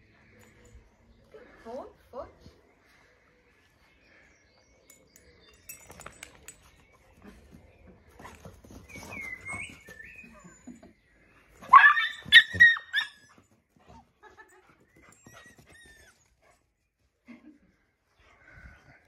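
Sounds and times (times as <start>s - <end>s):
dogs scuffling in play: 7.2s - 10.4s
puppy yelping barks: 11.7s - 13.2s.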